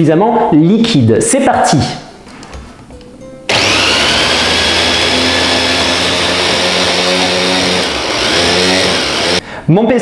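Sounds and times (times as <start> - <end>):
electric mini chopper whining: 3.5 - 9.4.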